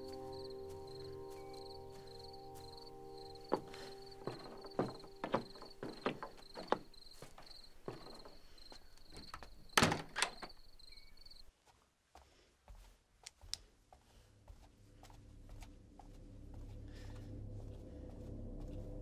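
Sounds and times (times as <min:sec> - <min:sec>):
footsteps: 0:00.0 - 0:09.8, 0:10.4 - 0:19.0
door banging shut: 0:09.2 - 0:10.6.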